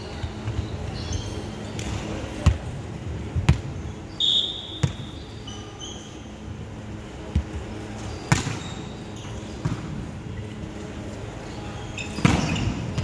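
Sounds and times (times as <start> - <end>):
volleyball hits echoing: 4.7 - 5.1, 8.3 - 8.6.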